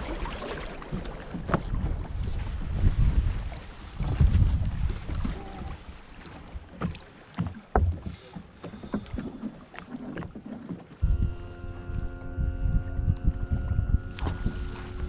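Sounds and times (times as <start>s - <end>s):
knocks and clunks on boat: 0.0s - 15.0s
waves lapping against boat hull: 0.0s - 15.0s
wind buffeting microphone: 1.4s - 6.0s, 11.0s - 15.0s
motor hum: 10.9s - 15.0s.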